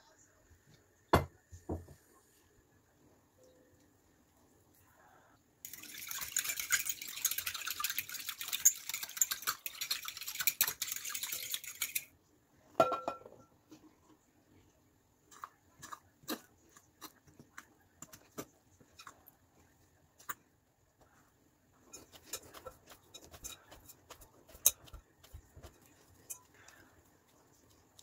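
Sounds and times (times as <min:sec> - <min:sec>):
fork whisking in glass bowl: 0:05.7 - 0:12.1, 0:21.8 - 0:28.0.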